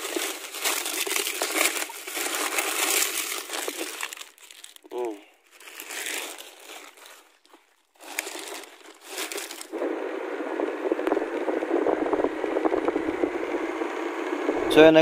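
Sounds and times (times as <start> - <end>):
plastic bags crinkling: 0.0 - 9.8
steady noise: 9.7 - 15.0.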